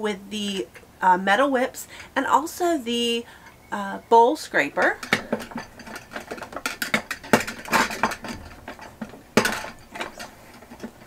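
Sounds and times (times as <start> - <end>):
metal and plastic clicks and clacks: 4.8 - 11.0.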